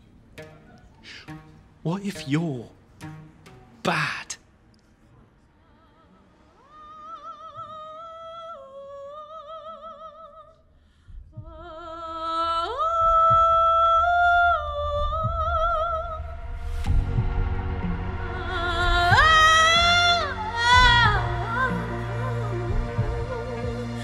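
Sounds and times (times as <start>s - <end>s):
operatic female voice singing: 5.7s - 10.6s, 11.4s - 16.6s, 18.2s - 24.0s.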